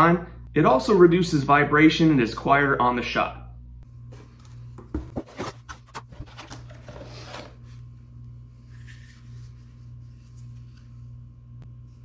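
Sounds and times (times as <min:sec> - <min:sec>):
faint steady hum: 0:00.0 - 0:12.0
cardboard rustling and scraping: 0:04.2 - 0:07.8.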